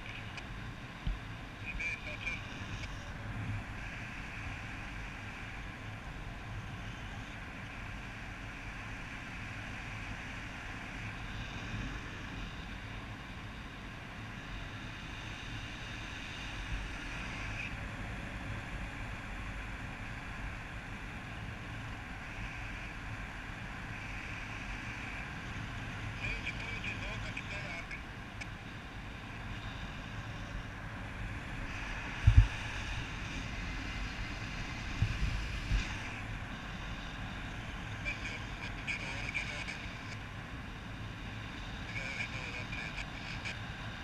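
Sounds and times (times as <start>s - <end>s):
wind rushing over microphone: 29.2s - 38.7s.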